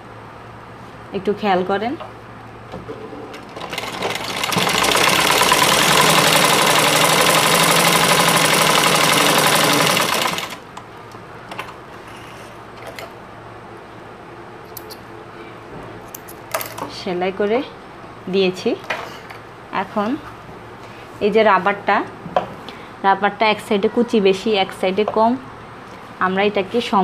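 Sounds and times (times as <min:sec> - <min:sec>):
sewing machine stitching: 0:03.4 - 0:10.7.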